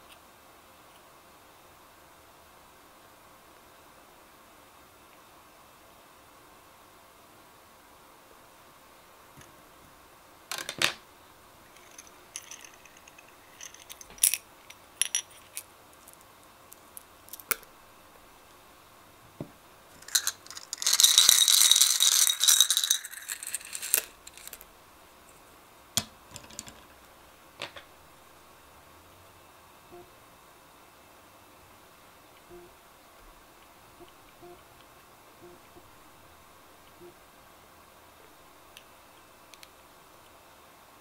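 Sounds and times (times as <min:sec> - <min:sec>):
candies rattling in plastic cup: 0:11.8 - 0:14.4, 0:19.9 - 0:24.6
plastic cups clicking: 0:20.0 - 0:24.6, 0:26.0 - 0:26.9.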